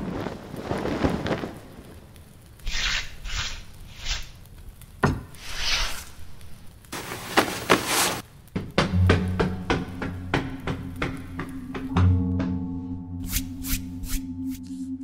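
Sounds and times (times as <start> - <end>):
cloth rustling: 5.4 - 8.3
cloth swishes: 6.9 - 8.3.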